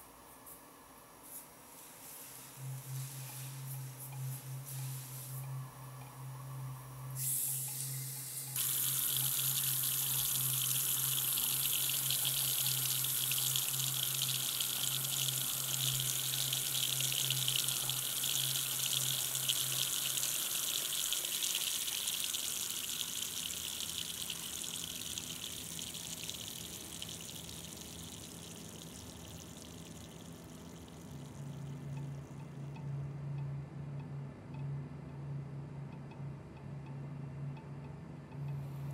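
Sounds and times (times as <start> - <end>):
steady low hum: 2.4 - 38.9
tap water running into sink: 8.6 - 32.1.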